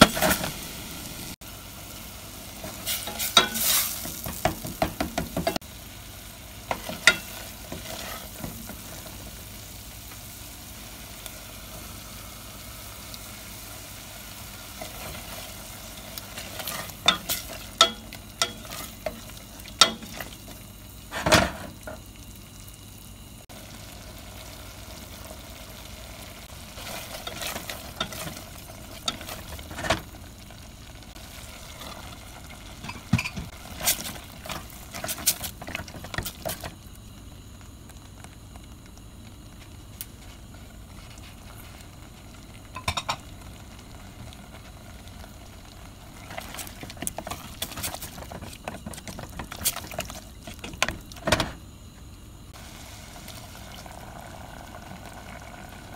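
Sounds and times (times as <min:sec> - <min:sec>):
frying sizzle: 0:00.0 - 0:55.9
wooden spoon scraping a pot: 0:06.7 - 0:08.8.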